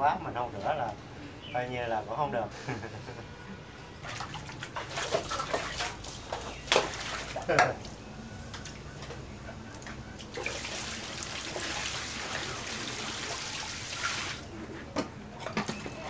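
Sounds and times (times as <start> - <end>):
tap water running into basin: 10.2 - 14.5.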